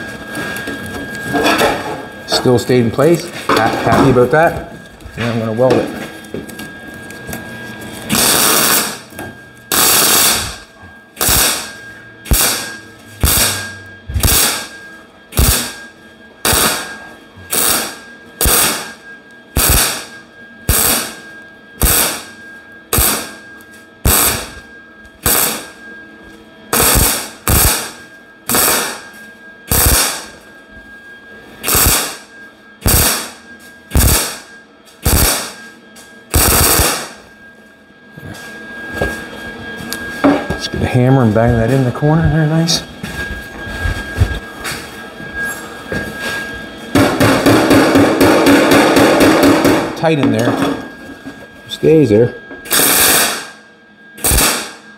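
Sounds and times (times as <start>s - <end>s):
mig welder tack welding: 8.1s - 14.7s, 15.4s - 15.8s, 16.4s - 16.9s, 17.5s - 21.2s, 21.8s - 22.3s, 22.9s - 23.4s, 24.0s - 24.6s, 25.2s - 25.8s, 26.7s - 29.0s, 29.7s - 30.4s, 31.6s - 35.6s, 36.3s - 37.2s, 52.7s - 53.6s, 54.2s - 54.8s.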